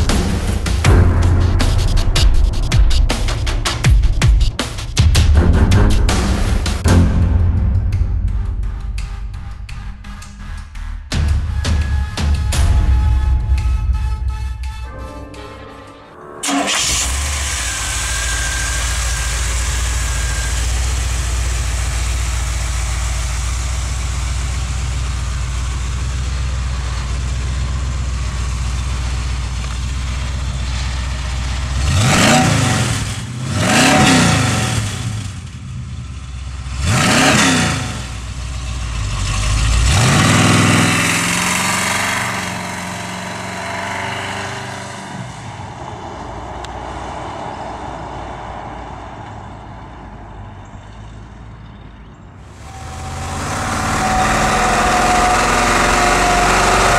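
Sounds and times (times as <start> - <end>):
engine revving: 0.0 - 12.9, 16.4 - 49.6, 52.5 - 56.9
truck pulling away: 16.4 - 56.9
engine idling with deep rumble: 16.5 - 43.0.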